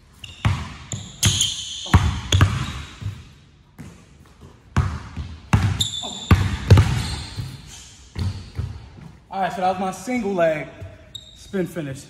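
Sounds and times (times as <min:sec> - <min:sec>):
sneaker squeaks on court: 0:00.1 - 0:03.9, 0:04.8 - 0:08.9, 0:10.8 - 0:11.5
basketball bouncing on hardwood: 0:02.0 - 0:03.2, 0:03.8 - 0:07.5, 0:08.1 - 0:09.1.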